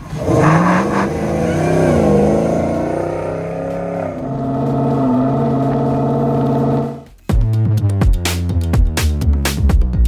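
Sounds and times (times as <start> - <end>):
car engine revving: 0.0 - 7.1.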